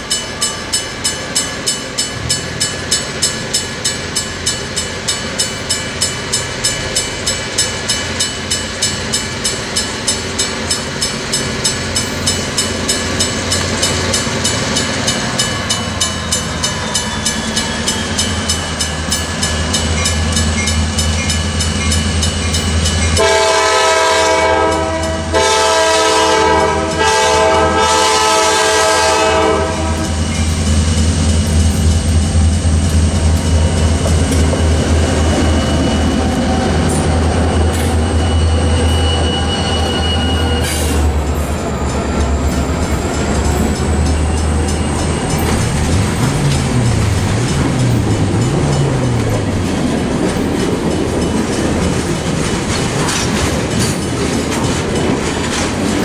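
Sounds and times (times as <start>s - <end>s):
diesel locomotives rumbling past: 0.0s - 56.0s
railroad crossing bell ringing: 0.0s - 56.0s
locomotive horn blasts: 23.2s - 30.3s.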